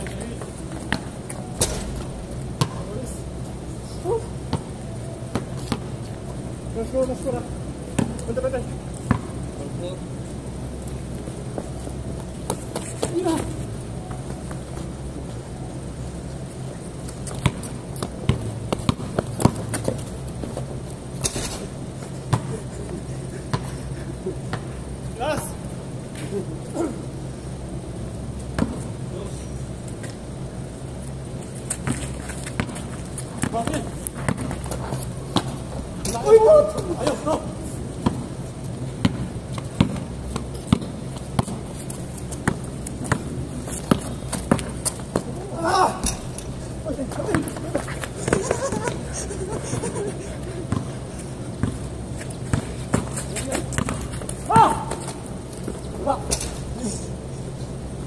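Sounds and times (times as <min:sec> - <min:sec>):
basketball bouncing on concrete: 0:02.6 - 0:03.0, 0:08.0 - 0:08.2, 0:09.0 - 0:09.4, 0:17.3 - 0:20.6, 0:22.3 - 0:22.5, 0:28.5 - 0:28.9, 0:31.8 - 0:35.7, 0:38.0 - 0:38.3, 0:39.0 - 0:41.7, 0:42.3 - 0:45.3, 0:50.7 - 0:51.0, 0:51.6 - 0:55.1.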